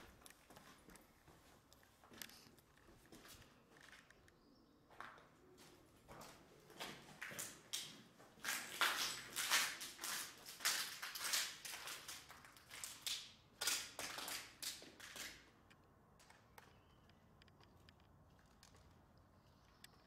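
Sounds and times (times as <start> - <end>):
footsteps crunching over rubble: 4.9 - 15.5.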